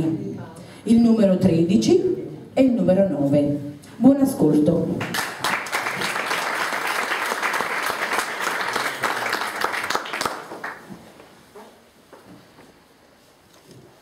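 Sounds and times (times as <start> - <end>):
audience applauding: 5.1 - 10.9.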